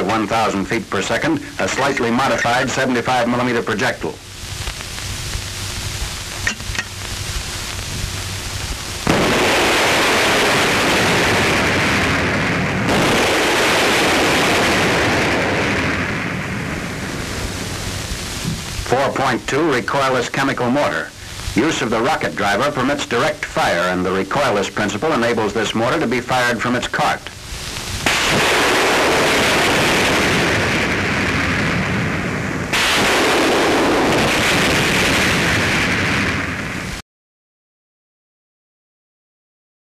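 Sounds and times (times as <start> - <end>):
old film hiss: 0.0 - 37.0
recoilless rifle blast: 9.0 - 17.7, 28.0 - 36.8
shell bursting: 9.0 - 18.9, 27.6 - 36.4.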